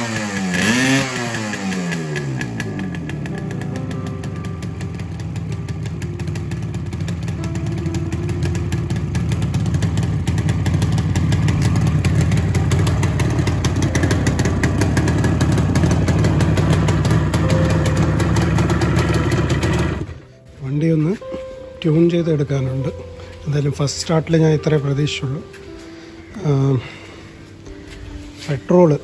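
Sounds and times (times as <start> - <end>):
two-stroke motorcycle engine running: 0.0 - 20.3.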